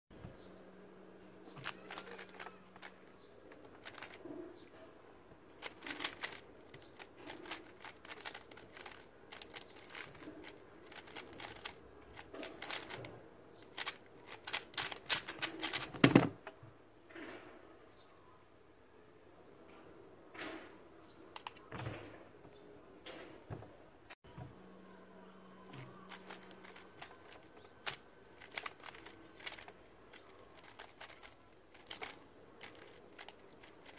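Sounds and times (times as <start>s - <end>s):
plastic puzzle cube clicking: 1.6s - 2.9s, 3.7s - 4.2s, 5.6s - 16.0s, 26.1s - 33.9s.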